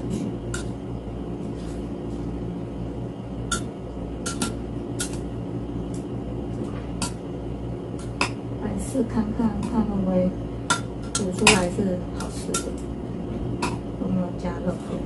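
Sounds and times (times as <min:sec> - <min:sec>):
low mechanical hum: 0:00.0 - 0:15.0
utensils clinking in pot: 0:10.7 - 0:12.8.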